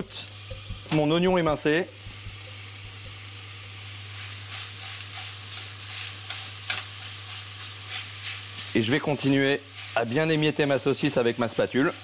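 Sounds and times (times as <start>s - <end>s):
meat sizzling in a frying pan: 0.0s - 12.0s
spatula stirring in a pan: 3.9s - 12.0s.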